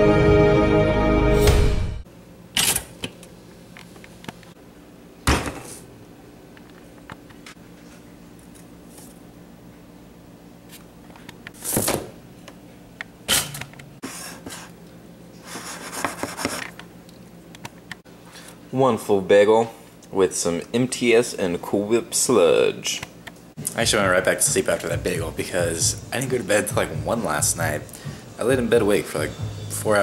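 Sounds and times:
faint steady hum: 2.1 - 30.0.

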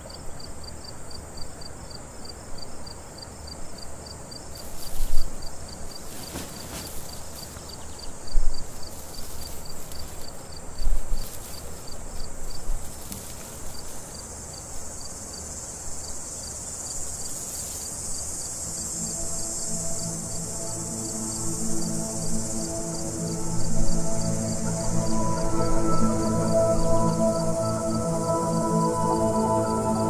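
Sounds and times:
crickets chirping: 0.0 - 30.0
high insect hiss: 0.0 - 30.0.

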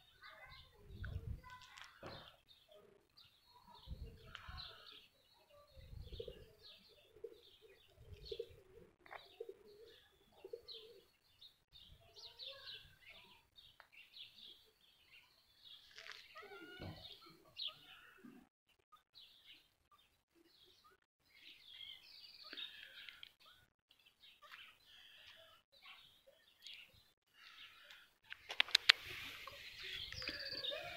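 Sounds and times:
small birds chirping: 0.0 - 30.9
dove cooing: 6.0 - 11.1.

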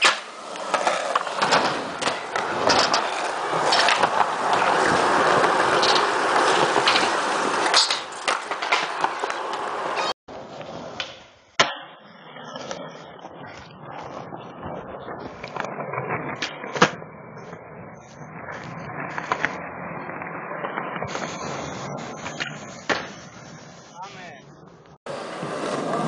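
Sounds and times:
skateboard smacking the ground: 0.0 - 12.8, 19.1 - 19.6, 22.2 - 23.2
skateboard wheels rolling on concrete: 0.0 - 26.0.

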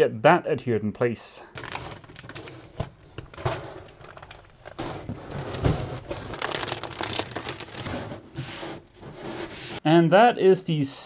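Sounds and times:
foam sheet crinkling and scraping: 1.6 - 9.8.

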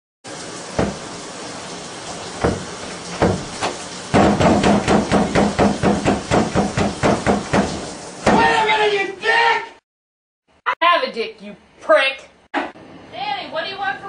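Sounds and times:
hand pounding on wooden door: 0.8 - 1.0, 2.4 - 8.6.

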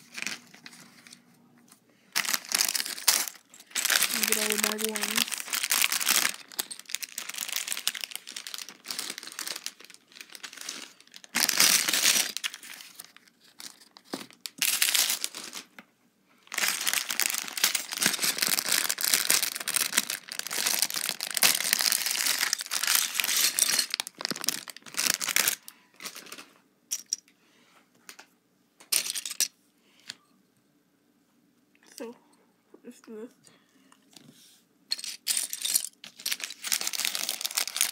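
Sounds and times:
plastic bags crinkling: 0.0 - 1.2, 2.1 - 15.8, 16.4 - 26.6, 34.9 - 37.9.

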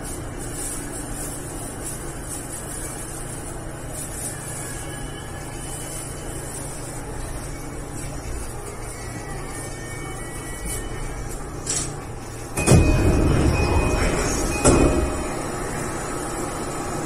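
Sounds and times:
low hum: 4.2 - 17.0.

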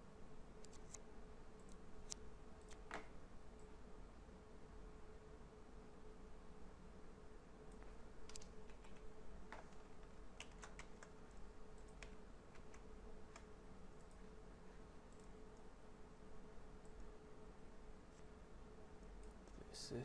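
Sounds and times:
faint steady hum: 0.0 - 20.0
keyboard and mouse clicking: 0.6 - 1.0, 1.6 - 3.1, 7.7 - 14.3.

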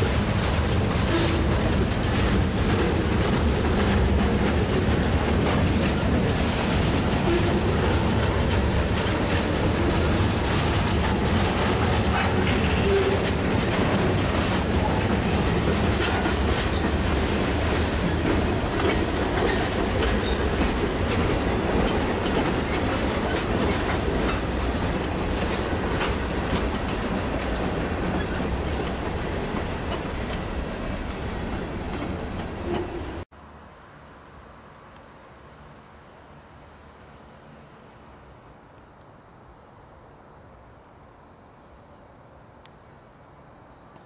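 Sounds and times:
freight train wheels rumbling: 0.0 - 33.3.

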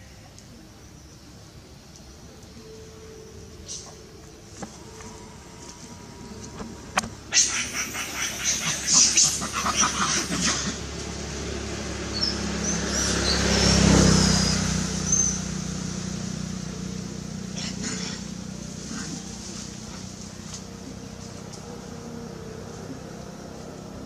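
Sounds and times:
motor vehicle engine passing: 2.4 - 24.0
crackling rustles: 18.6 - 21.9.

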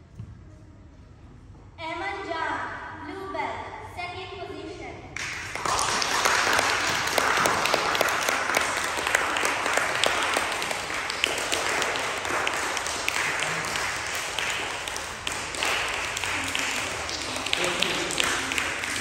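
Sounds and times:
people applauding: 5.2 - 19.0.

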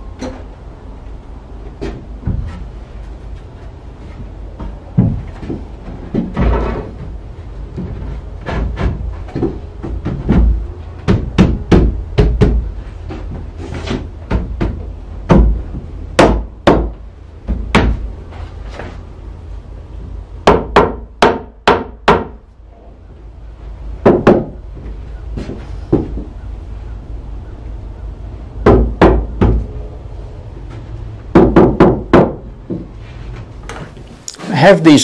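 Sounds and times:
sharp wooden knocks: 4.6 - 18.1, 20.4 - 22.4, 24.0 - 24.6, 28.6 - 29.6, 31.3 - 32.9.

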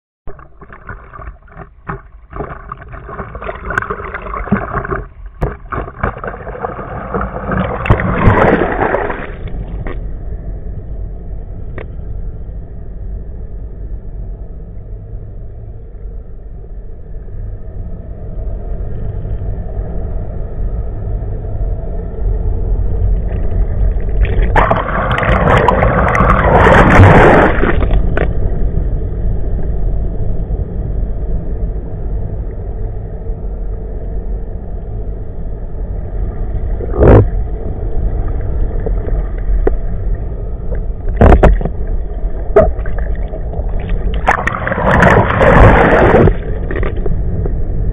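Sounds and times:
outboard engine drone underwater: 0.2 - 47.9
water splashing at surface: 0.3 - 10.0, 23.3 - 28.3, 41.1 - 47.2
water rushing underwater: 0.3 - 10.6, 22.7 - 29.0, 35.8 - 47.9.

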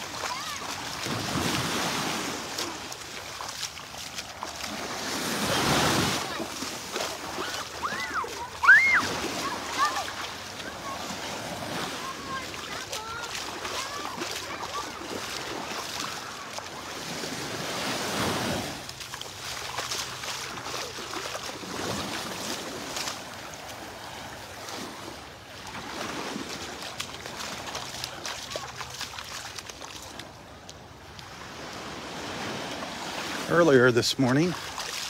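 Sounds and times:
small waves lapping on sand: 0.0 - 35.0.

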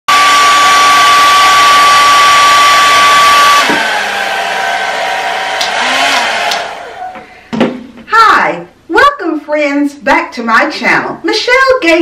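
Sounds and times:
hair dryer whining: 0.1 - 7.5.

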